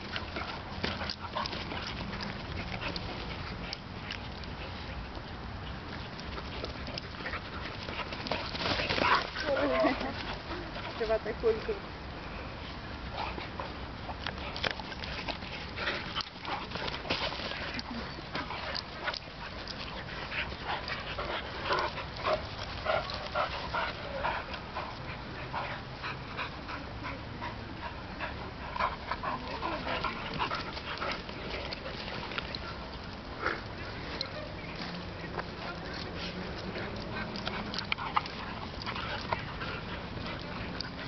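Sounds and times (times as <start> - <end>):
dogs scuffling: 0.0 - 11.9, 12.5 - 26.4, 28.6 - 41.0
dogs vocalizing: 13.0 - 41.0.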